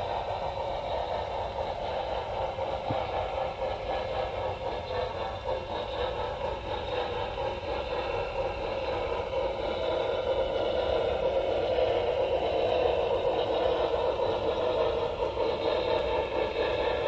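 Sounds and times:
model train wheels clattering: 0:00.0 - 0:17.0.

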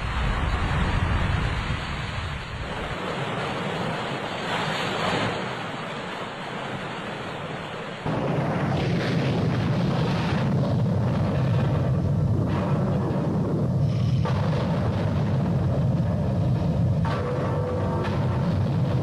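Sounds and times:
rough sea waves: 0:00.0 - 0:19.0
waves washing over ship: 0:00.0 - 0:19.0
wind buffeting microphone: 0:06.7 - 0:19.0.

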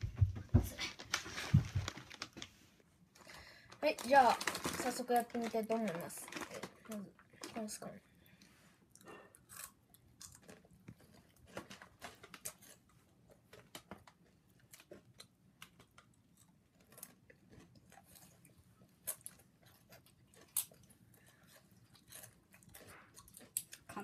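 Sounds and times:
person chewing crunchy snack: 0:08.9 - 0:24.0.

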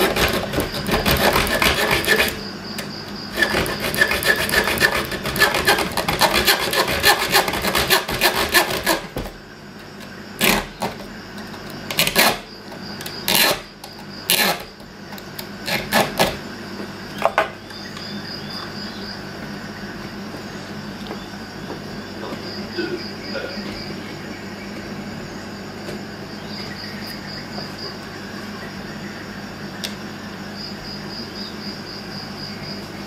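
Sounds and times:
saw blade cutting metal tube: 0:00.0 - 0:02.4, 0:03.3 - 0:09.1.

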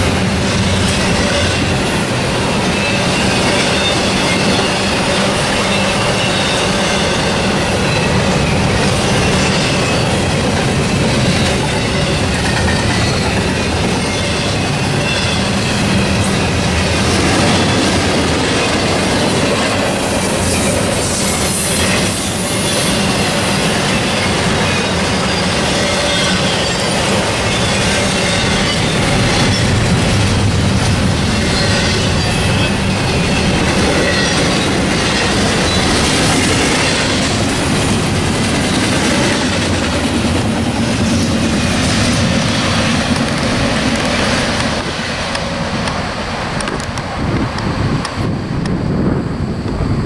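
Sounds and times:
high wheel squeal: 0:00.0 - 0:39.7
train wheels rumbling on rail: 0:00.0 - 0:50.0.

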